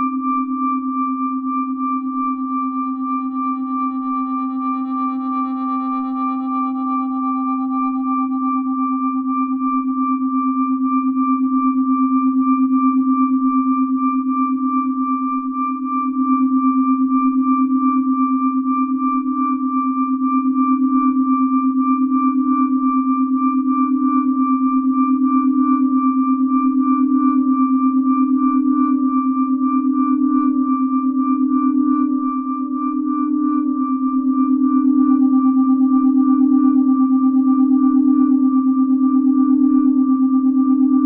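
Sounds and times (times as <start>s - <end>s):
audio feedback drone: 25.4s - 41.0s.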